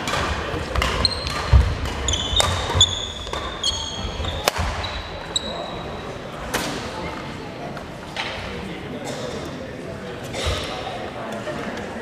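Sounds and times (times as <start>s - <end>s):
rackets striking shuttlecock: 0.0s - 5.0s
shoes squeaking on wooden floor: 1.0s - 5.8s.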